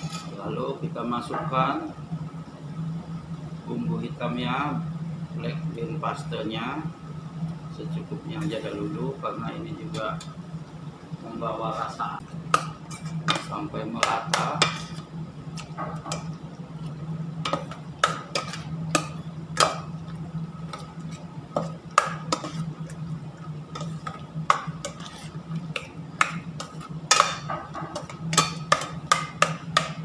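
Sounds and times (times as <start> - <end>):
metal spoon scraping pot: 22.3 - 22.8, 23.7 - 25.9.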